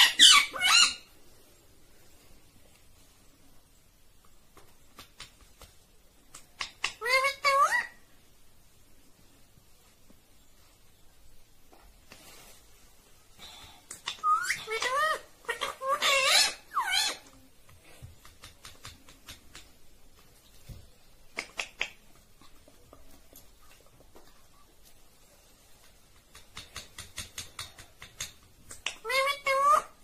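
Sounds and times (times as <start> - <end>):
parakeet calling: 0.0 - 1.1.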